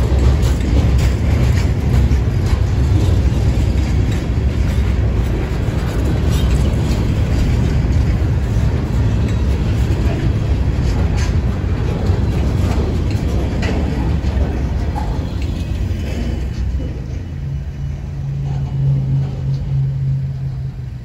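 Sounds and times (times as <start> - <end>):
freight train rolling: 0.0 - 21.0.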